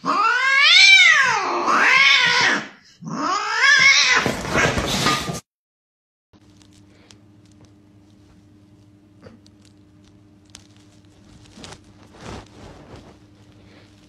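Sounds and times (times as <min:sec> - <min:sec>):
cat yowling: 0:00.0 - 0:04.8.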